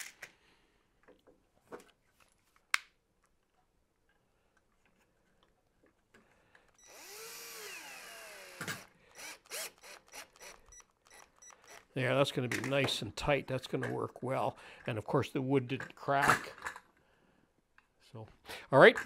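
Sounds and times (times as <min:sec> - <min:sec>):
cordless drill driving a screw: 0:06.8 - 0:12.0.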